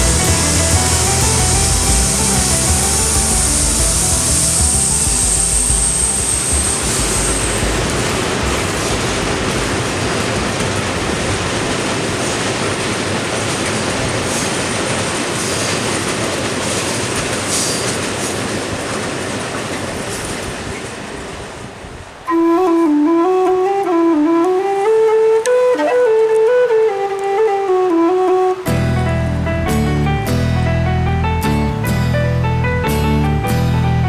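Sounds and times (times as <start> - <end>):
freight train wheels rumbling: 0.0 - 34.0
faint high wheel squeals: 3.8 - 8.0.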